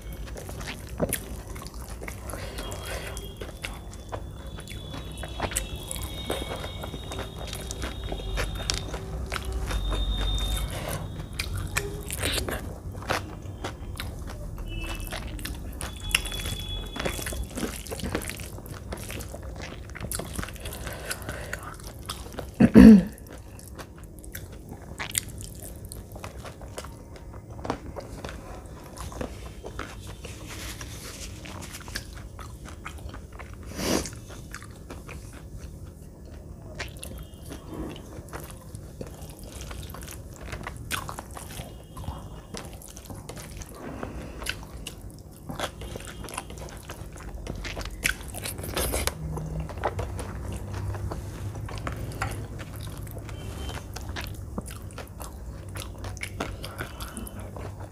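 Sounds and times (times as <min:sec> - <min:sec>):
food crunching: 0:00.0 - 0:57.9
person chewing food: 0:00.0 - 0:57.9.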